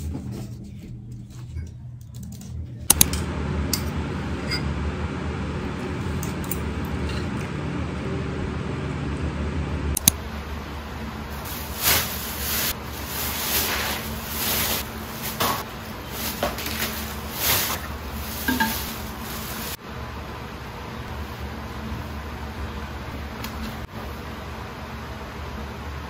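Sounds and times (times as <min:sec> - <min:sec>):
bags rustling: 0:11.3 - 0:19.8.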